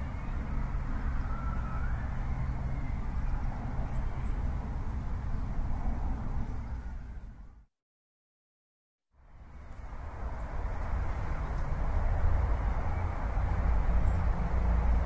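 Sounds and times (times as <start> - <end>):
faint rising whine: 0.0 - 4.9
street traffic rumble: 0.0 - 7.6, 9.2 - 15.0.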